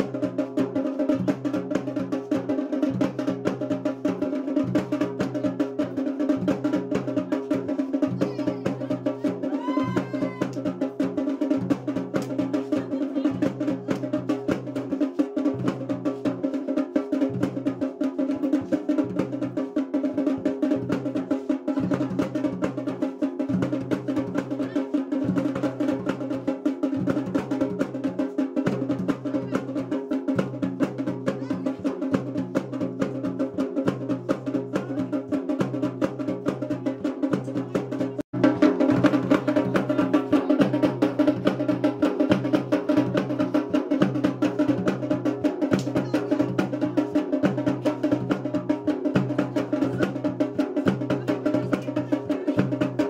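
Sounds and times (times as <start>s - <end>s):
drums playing fast rhythm: 0.0s - 53.0s.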